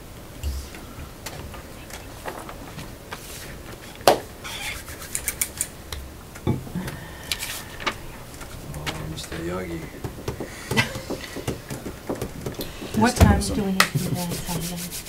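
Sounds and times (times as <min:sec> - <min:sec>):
loud knock: 0:09.9 - 0:14.3.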